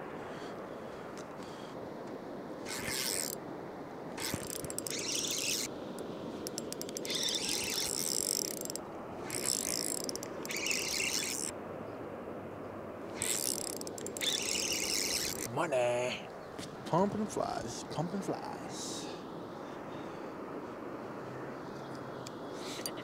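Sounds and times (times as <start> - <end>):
fishing reel clicking: 2.7 - 3.4, 4.2 - 5.7, 6.4 - 11.5, 13.2 - 15.5.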